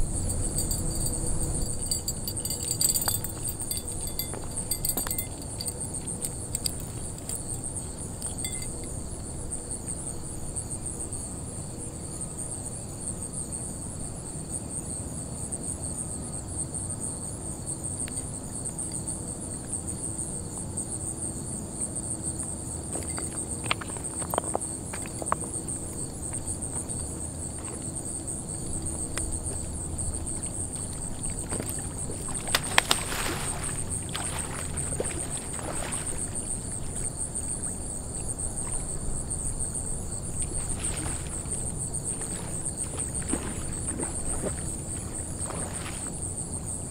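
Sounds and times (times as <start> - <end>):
low rumble: 0.0 - 4.3
insects chirring: 0.0 - 46.9.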